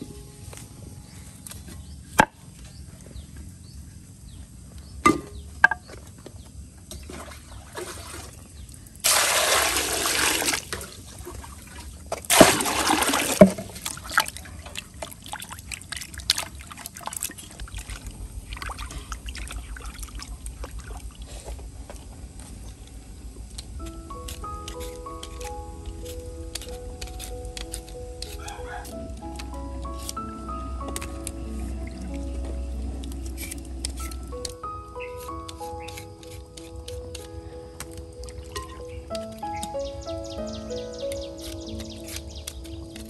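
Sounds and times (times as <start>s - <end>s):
water pouring into clay basin: 7.1s - 21.3s
vegetables splashing in water: 9.0s - 21.1s.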